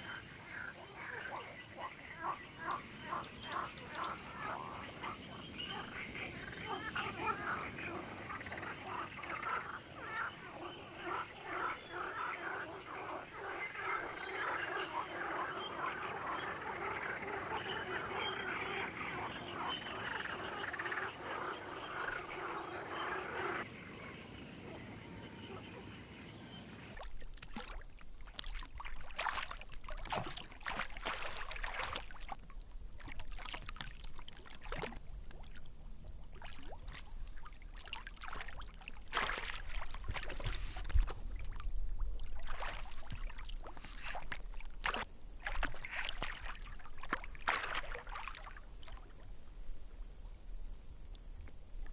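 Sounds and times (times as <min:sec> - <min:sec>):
frogs croaking: 0:00.0 - 0:40.6
water splashing and dripping: 0:27.0 - 0:49.2.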